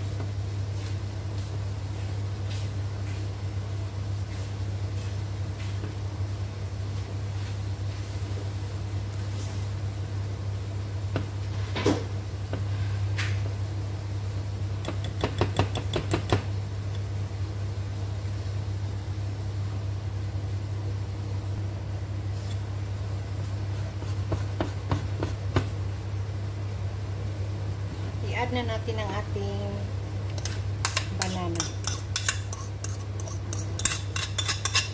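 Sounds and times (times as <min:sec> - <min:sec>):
steady low hum: 0:00.0 - 0:34.9
whisk clicking against bowl: 0:14.8 - 0:16.5, 0:30.3 - 0:34.9.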